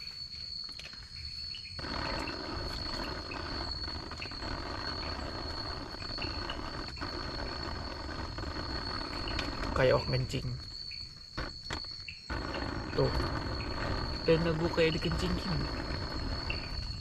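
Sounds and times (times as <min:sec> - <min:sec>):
high insect drone: 0:00.0 - 0:17.0.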